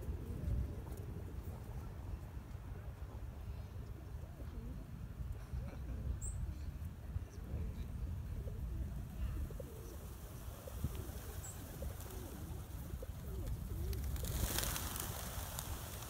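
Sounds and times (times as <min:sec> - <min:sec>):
pigeons cooing: 0:08.2 - 0:16.0
wings flapping: 0:10.0 - 0:16.0.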